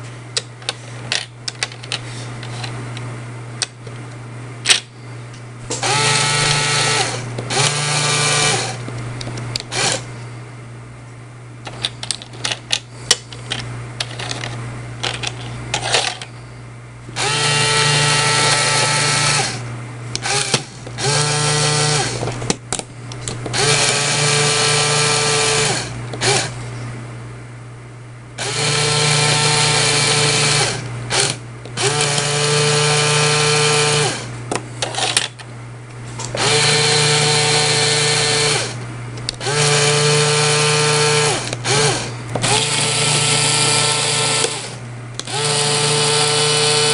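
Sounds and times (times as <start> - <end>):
small electric motor whining: 5.7 - 8.9, 9.6 - 10.1, 17.2 - 22.3, 23.5 - 26.6, 28.4 - 34.3, 36.2 - 46.9
plastic pieces clicking: 11.7 - 16.3.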